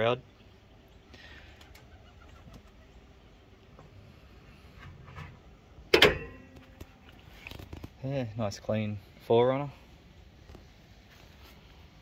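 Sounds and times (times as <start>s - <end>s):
car bonnet slamming shut: 5.9s - 6.4s.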